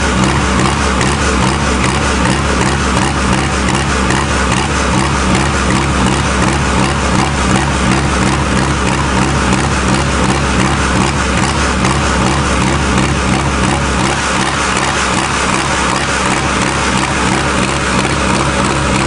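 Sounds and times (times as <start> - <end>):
diesel tractor engine idling: 0.0 - 19.0.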